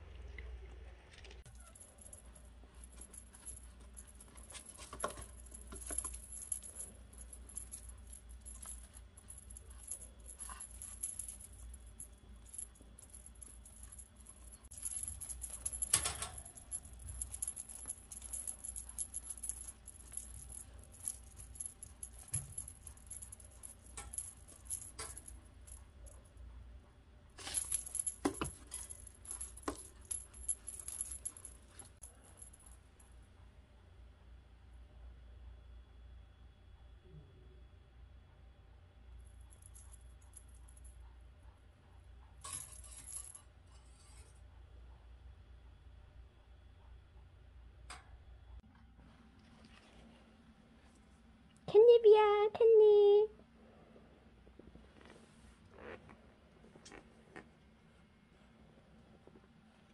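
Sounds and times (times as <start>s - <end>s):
cat toy bell jingling: 1.5s - 26.2s, 27.4s - 32.7s.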